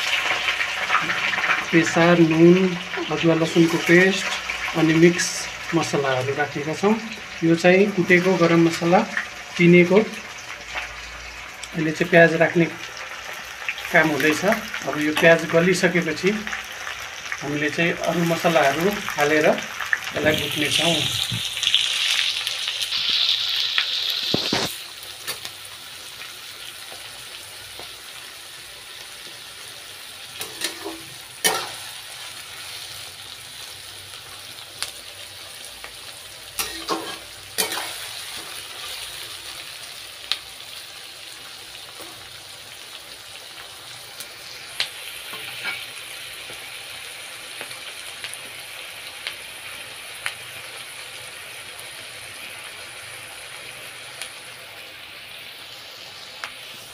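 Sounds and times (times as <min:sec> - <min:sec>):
onions sizzling in hot oil: 0:00.0 - 0:56.9
metal spatula scraping a pan: 0:30.4 - 0:32.0, 0:36.6 - 0:39.0, 0:45.3 - 0:45.9.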